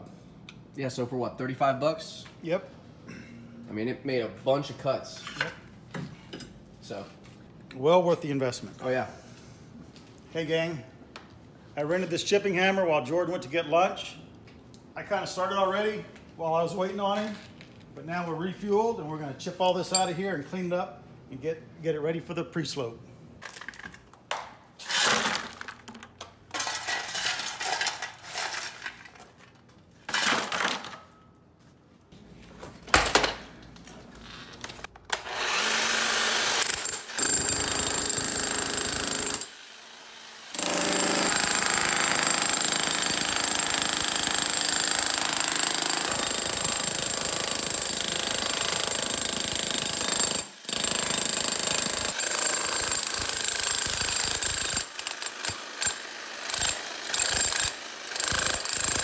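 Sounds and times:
shovel scraping concrete chunks: 0:24.8 - 0:25.9, 0:26.5 - 0:31.1
electric chipping hammer running: 0:35.2 - 0:59.0.

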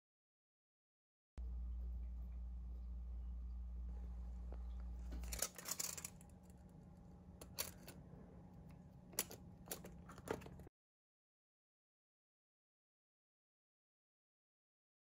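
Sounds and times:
low hum: 0:01.4 - 0:10.7.

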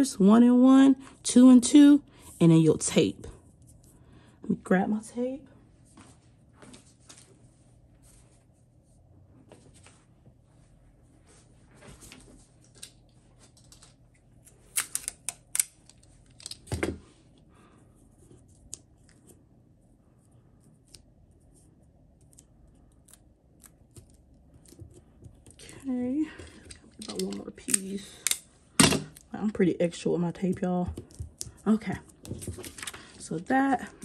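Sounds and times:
adhesive tape pulled and torn: 0:14.4 - 0:16.6.

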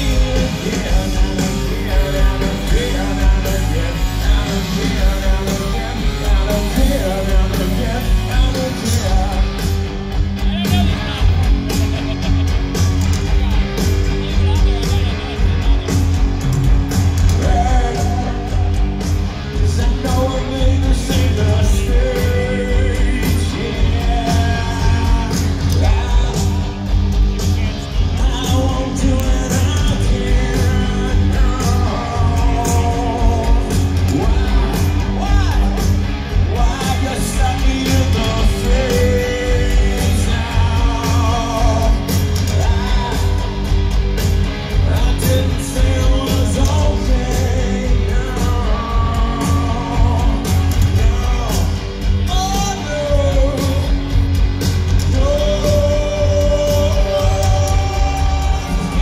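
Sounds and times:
person singing lead vocal: 0:00.0 - 0:12.3, 0:17.2 - 0:59.0
live rock band: 0:00.0 - 0:59.0.

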